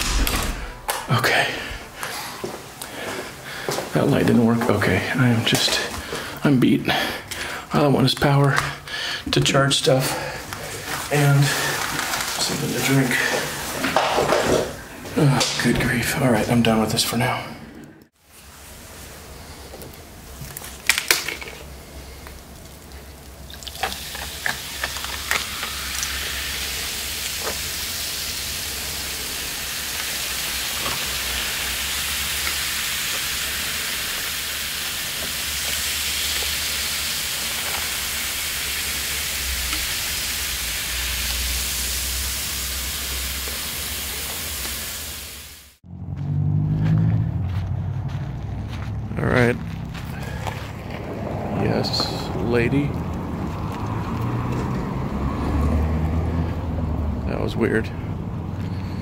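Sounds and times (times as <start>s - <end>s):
soda fizzing: 10.0s - 14.9s, 18.3s - 45.8s
ice cracking: 20.5s - 26.2s.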